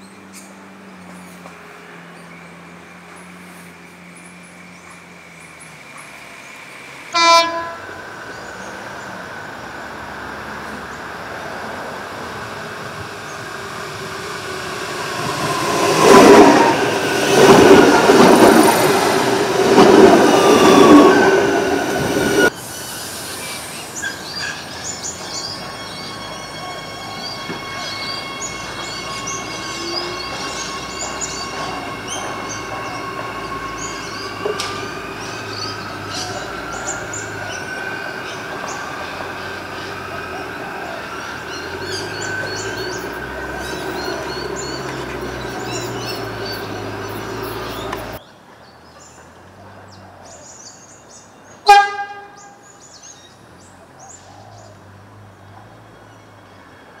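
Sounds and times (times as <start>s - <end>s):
train horn blast: 7.1s - 8.0s, 25.5s - 34.8s, 51.6s - 52.6s.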